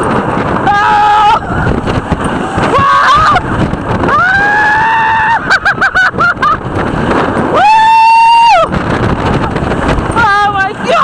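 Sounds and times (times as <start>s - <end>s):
roller coaster train moving: 0.0s - 11.0s
rushing wind: 0.0s - 11.0s
riders screaming: 0.4s - 5.9s, 6.6s - 9.6s.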